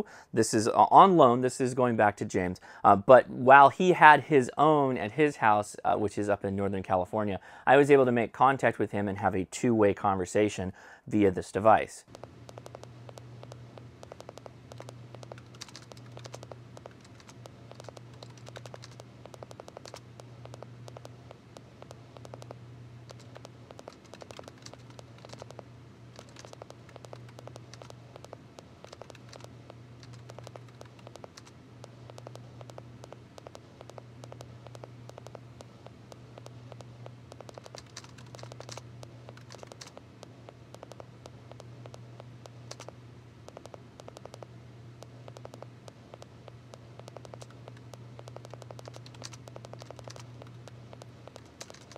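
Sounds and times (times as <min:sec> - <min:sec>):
low steady hum: 0:00.0 - 0:51.9
keyboard keystroke clicks: 0:12.1 - 0:25.6, 0:26.2 - 0:40.0, 0:40.7 - 0:51.9.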